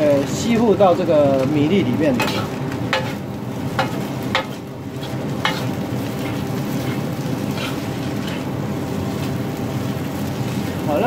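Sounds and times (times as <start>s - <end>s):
rice sizzling in a wok: 0.0s - 11.0s
steady low hum: 1.8s - 11.0s
metal ladle scraping wok: 3.8s - 8.5s.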